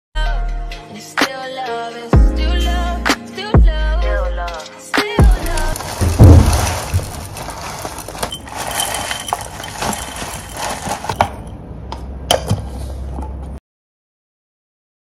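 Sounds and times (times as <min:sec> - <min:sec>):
kitchen handling clicks and rustles: 0:05.3 - 0:11.5
glass jar knocking on stone counter: 0:05.3 - 0:11.6.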